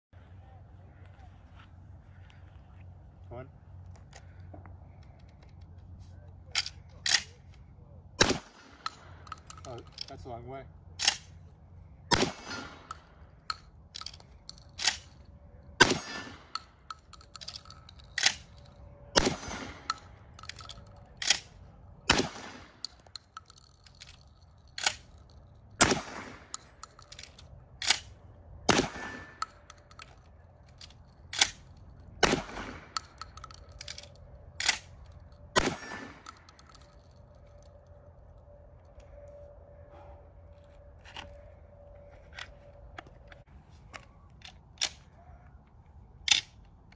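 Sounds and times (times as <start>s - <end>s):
shotgun shots: 8.2s - 9.2s, 12.1s - 13.0s, 15.8s - 16.5s, 19.1s - 20.1s, 21.2s - 22.9s, 25.8s - 26.8s, 28.7s - 29.4s, 32.2s - 33.2s, 35.5s - 36.4s
shotgun action clacking: 8.2s - 10.1s, 11.0s - 11.4s, 12.1s - 15.2s, 28.7s - 37.2s.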